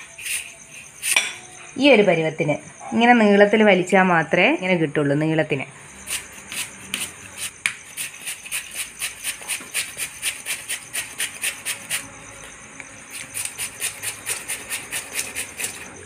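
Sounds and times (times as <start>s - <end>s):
potato rasping on a grater: 0.0s - 1.2s, 6.1s - 12.1s, 13.1s - 16.0s.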